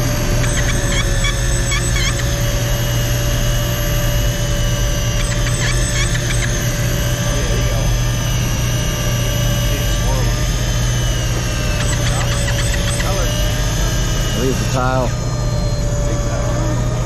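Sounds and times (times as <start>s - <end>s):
short high squeaks: 0.0s - 2.5s, 5.0s - 6.8s, 10.8s - 16.5s
fishing reel motor winding: 0.0s - 7.8s, 8.6s - 15.9s
low steady drone: 0.0s - 17.0s.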